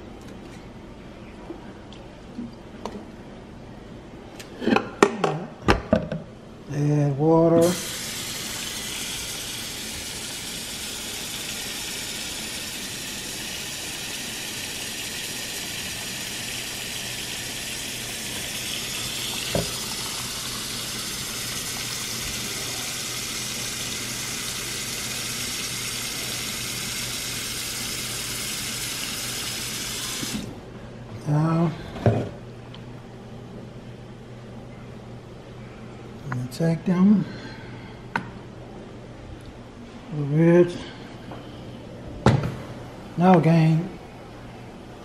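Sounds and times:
faucet water filling metal pot: 7.6s - 30.5s.

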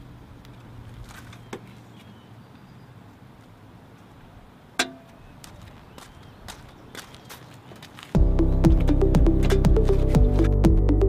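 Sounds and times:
low hum: 8.2s - 11.0s.

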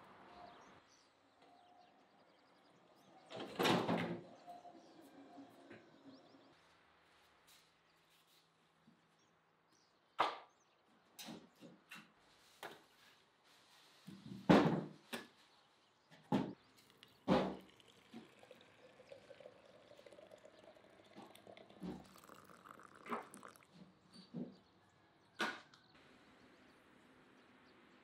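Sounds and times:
water pouring into teapot: 16.6s - 23.8s.

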